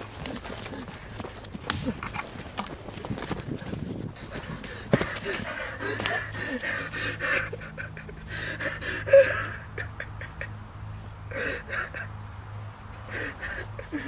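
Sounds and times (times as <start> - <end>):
young man panting heavily: 0.0 - 2.0, 3.4 - 12.2, 12.8 - 14.0
low drone hum: 4.6 - 14.0.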